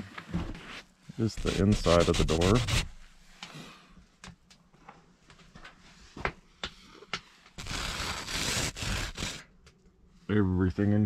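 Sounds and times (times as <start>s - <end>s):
glove brushing frost on tarp: 1.3s - 2.8s, 7.6s - 9.4s.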